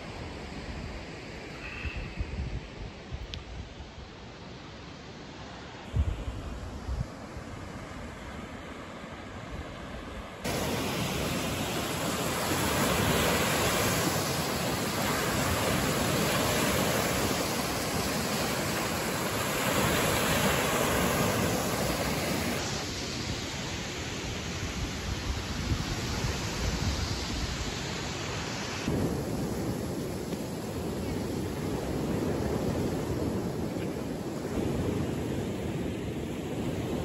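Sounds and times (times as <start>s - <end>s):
waves breaking on sandy beach: 4.1s - 37.0s.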